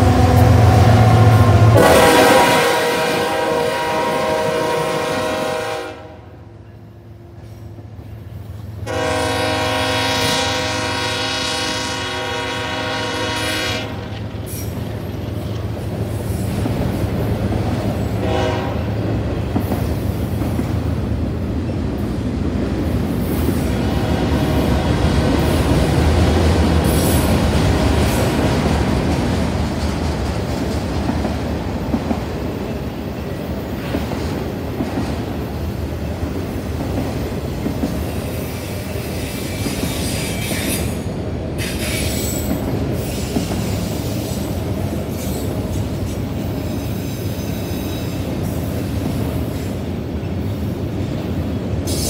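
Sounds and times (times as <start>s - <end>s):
train cars rumbling on rails: 0.0s - 52.0s
locomotive air horn: 0.1s - 6.5s, 8.8s - 14.2s, 18.2s - 19.0s.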